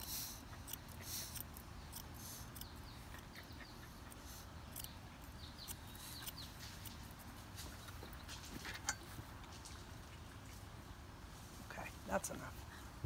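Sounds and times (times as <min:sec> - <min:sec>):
shears snipping hair: 0:00.0 - 0:08.9
small birds chirping: 0:00.0 - 0:11.1.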